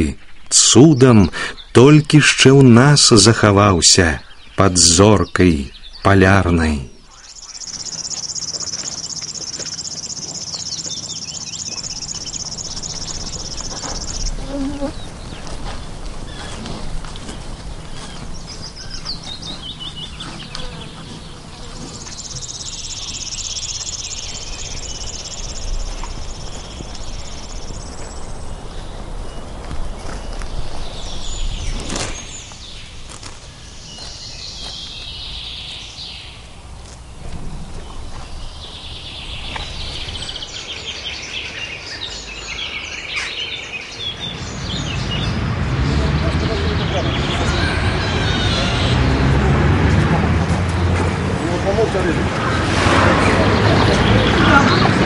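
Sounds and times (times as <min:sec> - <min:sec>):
small birds chirping faintly: 0:00.0 - 0:49.7
insect trilling buzz: 0:07.5 - 0:15.1.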